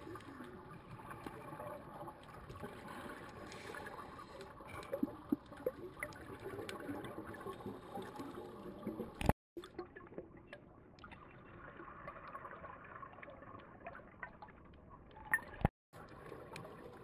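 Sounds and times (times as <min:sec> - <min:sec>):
underwater bubbles gurgling: 0:00.0 - 0:17.0.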